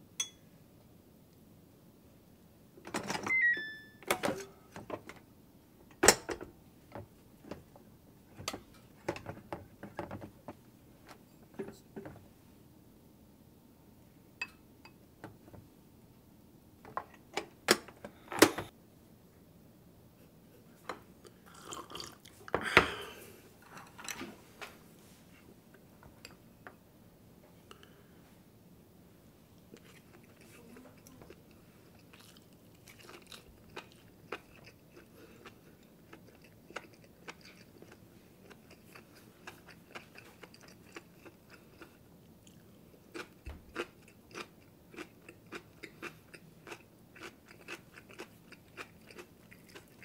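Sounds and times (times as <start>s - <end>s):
falling electronic beeps: 3.3s - 4.0s.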